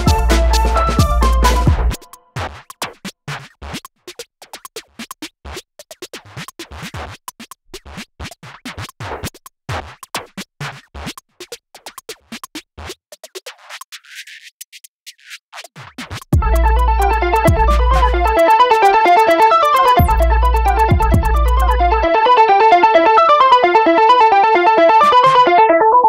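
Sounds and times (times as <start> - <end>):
heavy bass beat: 0.0 - 2.0, 16.4 - 22.3
electronic dance music: 0.0 - 2.2, 16.4 - 26.0
clipped drum-machine sounds: 0.0 - 26.0
stuttering scratch-like hits: 15.6 - 22.1.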